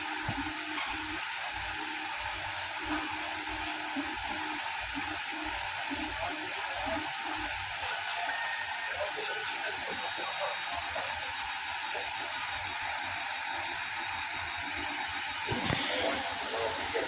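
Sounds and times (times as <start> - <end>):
thin high whine: 0.0 - 11.2
key cutting machine motor whir: 0.0 - 17.0.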